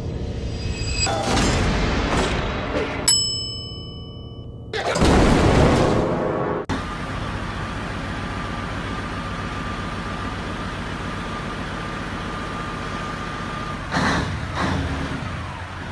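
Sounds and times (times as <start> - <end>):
engine running steadily: 6.7 - 15.9.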